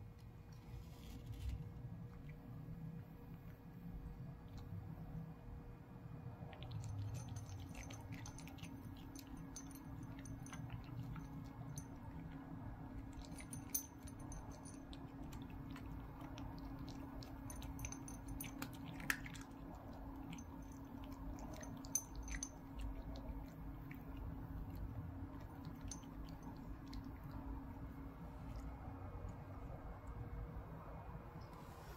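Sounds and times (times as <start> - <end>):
faint steady hum: 0.0 - 31.9
cat crunching dry kibble: 6.5 - 27.3.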